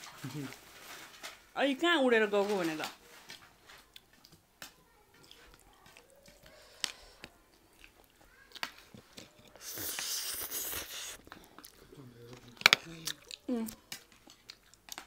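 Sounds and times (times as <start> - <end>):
chewing: 3.1 - 15.0
loud slurp of noodles: 9.6 - 11.2.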